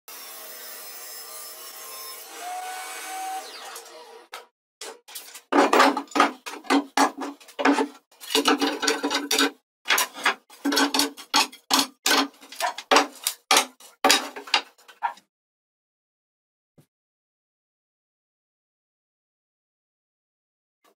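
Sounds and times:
metal pipe clamps clanking: 4.8s - 14.8s
wooden strips clacking: 4.8s - 15.2s.

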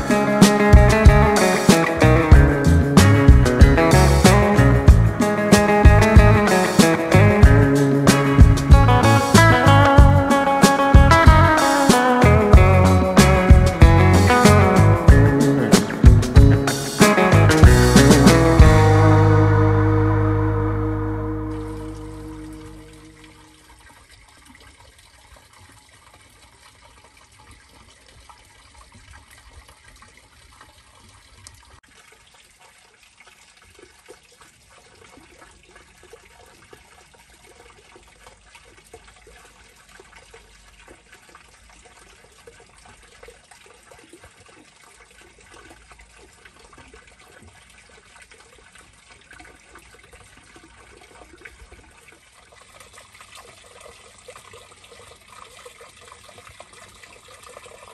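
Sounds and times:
water trickling into stone basin: 18.6s - 57.9s.

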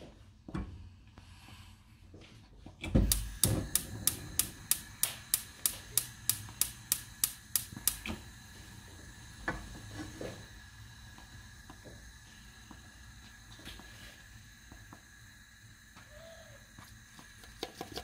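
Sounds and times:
sharp evenly spaced taps: 3.1s - 8.0s.

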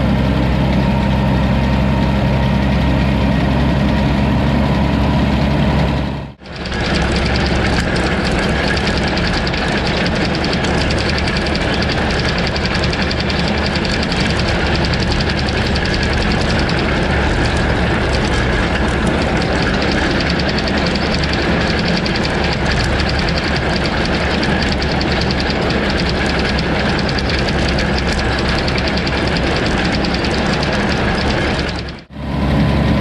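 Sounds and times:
tractor engine under load: 0.0s - 33.0s
mower rattling: 6.4s - 32.1s.

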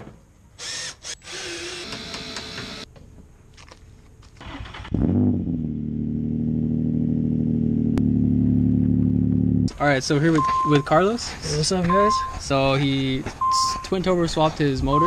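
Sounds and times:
car engine starting and idling: 4.3s - 9.8s.

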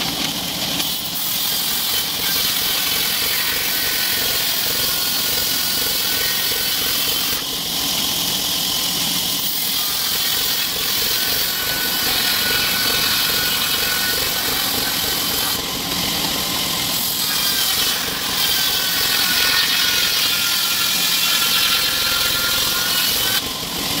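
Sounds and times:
band saw cutting through log: 0.0s - 24.0s.

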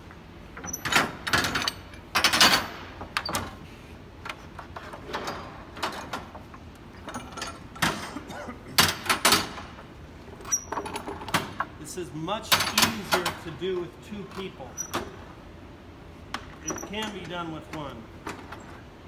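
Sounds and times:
metal pipe clamps clanking: 7.0s - 9.7s, 16.5s - 18.7s.

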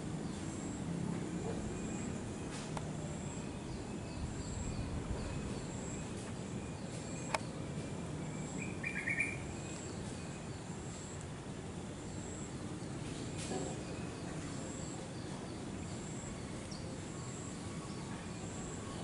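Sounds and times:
bird chirp: 3.2s - 10.8s.

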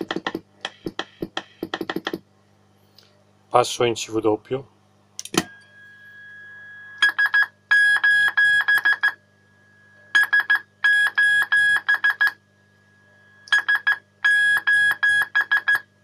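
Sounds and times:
low mains hum: 0.0s - 16.0s
faint steady tone: 5.4s - 7.7s, 8.9s - 10.2s, 12.4s - 13.6s.

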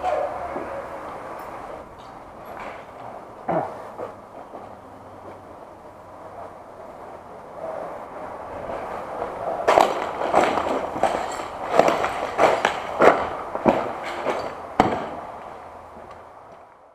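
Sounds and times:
steady background hiss: 0.0s - 16.9s
footsteps crunching over rubble: 9.7s - 16.7s.

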